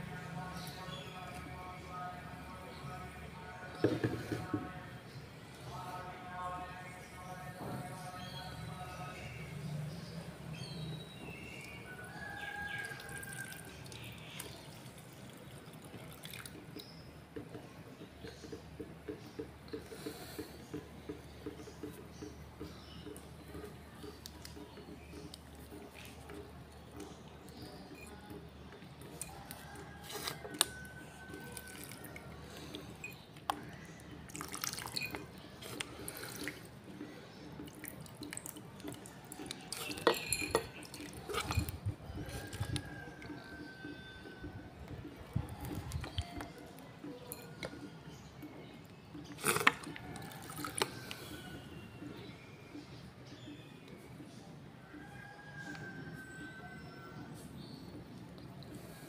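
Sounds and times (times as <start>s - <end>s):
liquid pouring into paper filter: 12.4s - 17.0s, 29.9s - 40.1s, 49.4s - 51.5s
liquid dripping into jar: 12.4s - 17.1s, 29.2s - 43.3s, 45.5s - 46.6s.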